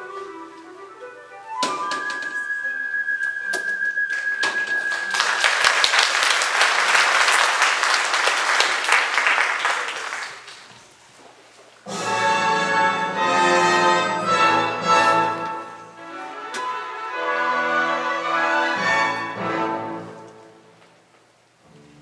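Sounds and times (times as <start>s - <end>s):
music held high note: 1.2s - 5.2s
audience applauding: 4.1s - 10.9s.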